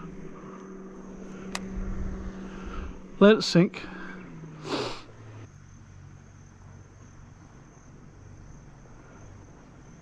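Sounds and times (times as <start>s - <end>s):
high-pitched insect chorus: 0.0s - 10.0s.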